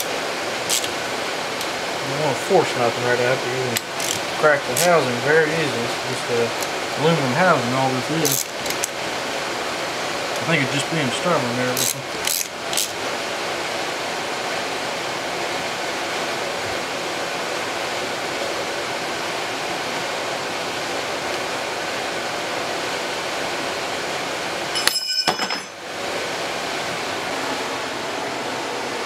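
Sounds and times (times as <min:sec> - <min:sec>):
sharp metallic clinks: 0:24.8 - 0:25.8.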